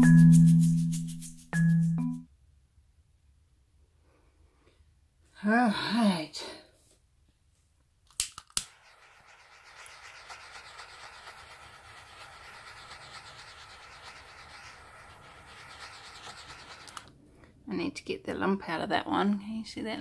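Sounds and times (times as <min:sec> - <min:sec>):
butane torch flame hissing: 0:08.6 - 0:17.1.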